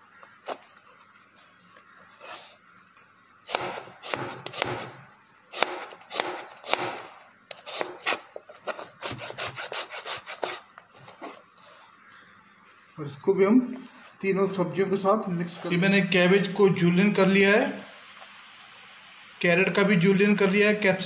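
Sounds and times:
knife slicing onion on board: 3.5s - 11.5s.

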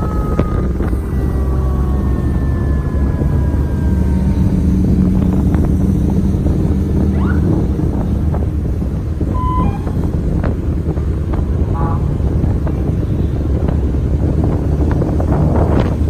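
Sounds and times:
vehicle rumble: 0.0s - 16.0s
wind buffeting microphone: 0.0s - 16.0s
multi-pitch tone: 9.3s - 10.2s, 11.7s - 12.4s
short beep: 9.4s - 10.0s.

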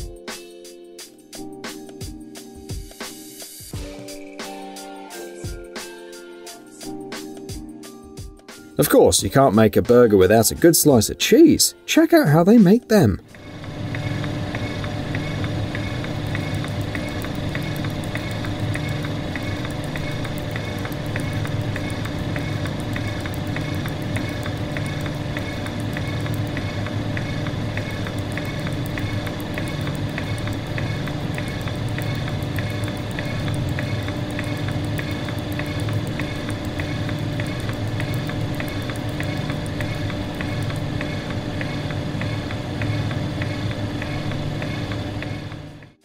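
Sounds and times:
mechanical drone hum: 12.9s - 46.0s
regular mechanical ticking: 13.3s - 46.0s.

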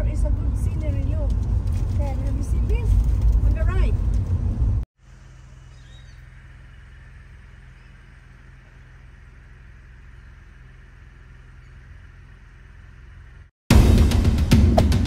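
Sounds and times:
car ride noise: 0.0s - 15.0s
low hum: 0.0s - 15.0s
faint high chirp: 5.4s - 13.0s.

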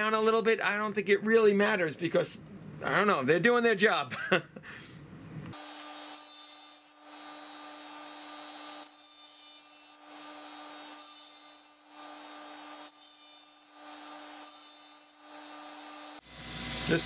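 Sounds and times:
bench grinder humming: 5.5s - 17.0s.

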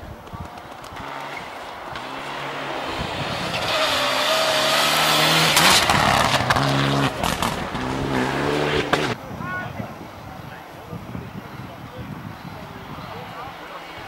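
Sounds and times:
rally car engine passing: 0.9s - 9.2s.

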